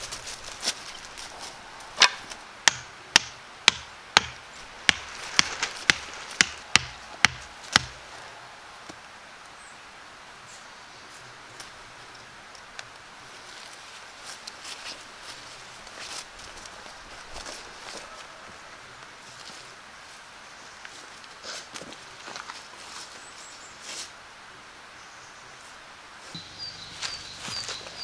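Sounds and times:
hammer driving stake into ground: 2.0s - 8.0s.

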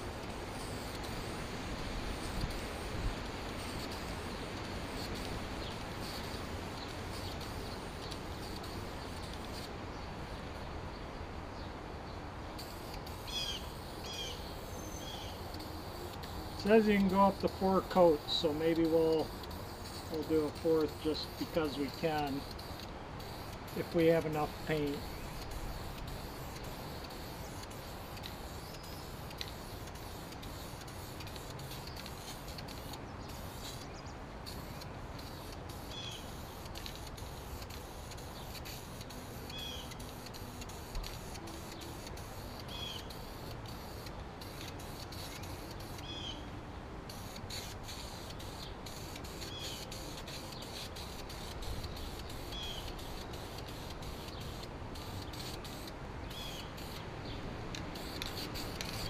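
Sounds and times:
aerosol can spraying hiss: 0.0s - 9.8s, 12.6s - 46.2s, 47.1s - 57.1s, 57.7s - 59.0s.

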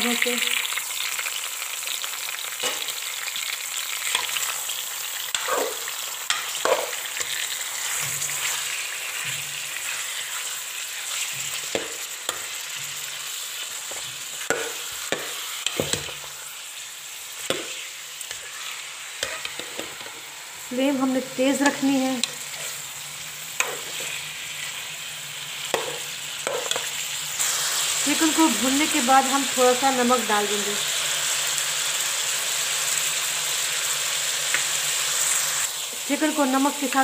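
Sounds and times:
chicken sizzling in hot oil: 0.0s - 37.0s
spoon knocking against pan: 14.5s - 16.2s, 25.7s - 26.9s.

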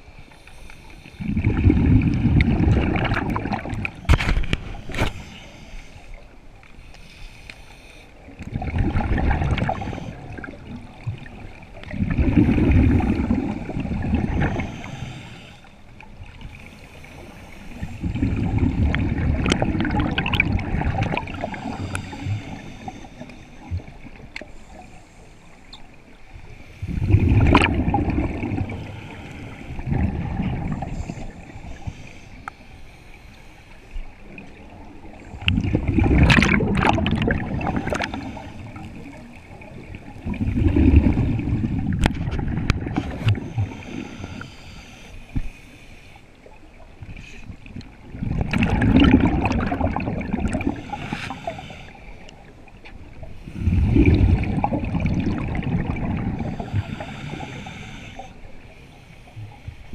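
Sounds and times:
scuba regulator breathing: 0.0s - 1.6s, 3.9s - 8.4s, 9.5s - 10.6s, 12.2s - 20.4s, 21.2s - 34.4s, 35.1s - 39.5s, 42.8s - 46.6s, 50.4s - 52.5s, 53.2s - 59.9s
bubbles gurgling underwater: 1.2s - 4.6s, 8.4s - 14.9s, 17.9s - 22.2s, 26.8s - 29.0s, 29.7s - 31.6s, 34.3s - 44.1s, 47.6s - 51.0s, 53.5s - 57.0s.

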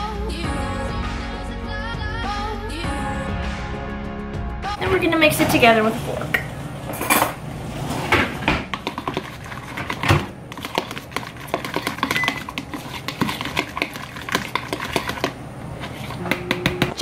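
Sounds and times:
fork clinking and scraping bowl: 8.7s - 17.0s.

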